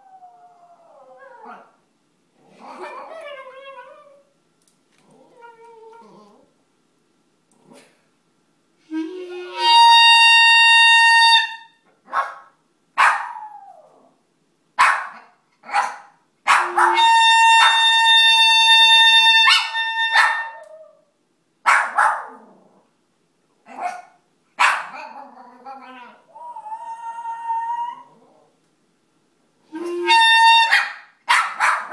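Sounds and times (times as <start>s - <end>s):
clarinet long held notes: 8.8s - 11.8s, 16.6s - 20.8s, 29.7s - 30.7s
dog barking and yelping: 12.0s - 14.0s, 14.8s - 17.9s, 19.4s - 20.8s, 21.6s - 22.5s, 23.6s - 27.2s, 30.7s - 31.9s
dog howling: 16.5s - 21.1s, 25.0s - 28.5s.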